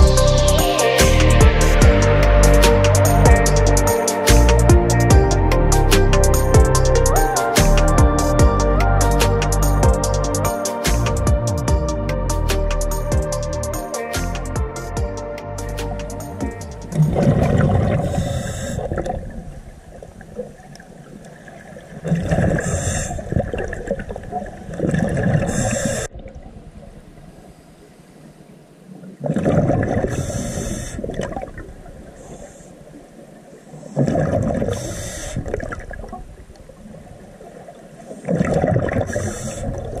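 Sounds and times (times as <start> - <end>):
exhaled bubbles gurgling underwater: 17.0 - 27.5, 28.9 - 40.0
breathing hiss through regulator: 18.0 - 19.0, 30.0 - 31.2, 33.7 - 35.6, 39.1 - 40.0.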